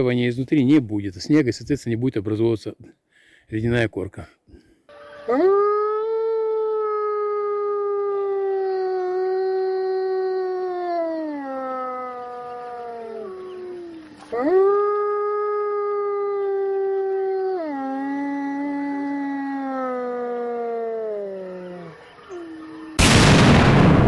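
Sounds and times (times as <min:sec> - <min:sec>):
wolf howling: 0:05.2 - 0:23.4.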